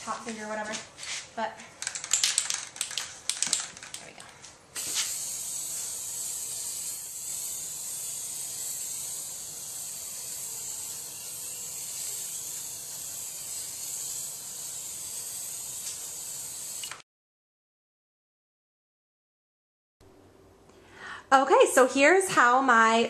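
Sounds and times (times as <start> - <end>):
aerosol spray can hissing: 4.8 - 17.0.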